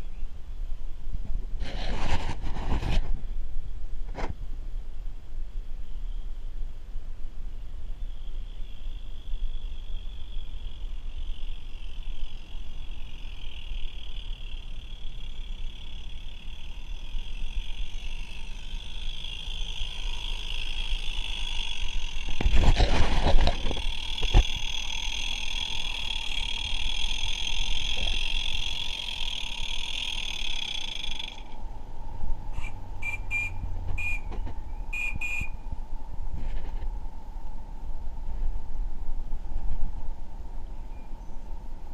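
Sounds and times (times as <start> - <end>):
low steady rumble: 0.0 - 41.9
camera rustle: 1.6 - 3.2, 22.1 - 24.8
insects buzzing: 7.4 - 36.3
short high chirps: 32.6 - 35.6.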